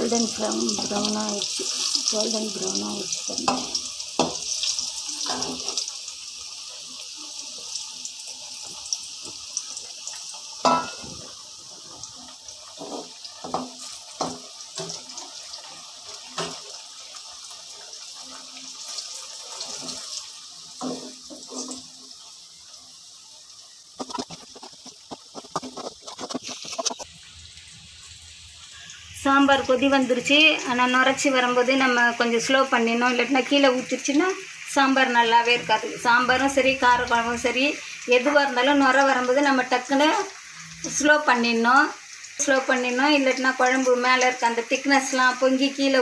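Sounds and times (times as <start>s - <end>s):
slices frying in hot oil: 0.0s - 46.0s.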